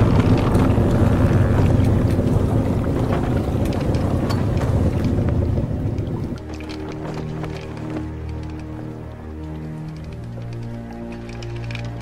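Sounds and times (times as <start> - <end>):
wind rushing: 0.0 - 6.4
held low music chord: 0.0 - 12.0
scattered clicks: 0.0 - 12.0
sea rushing: 0.0 - 12.0.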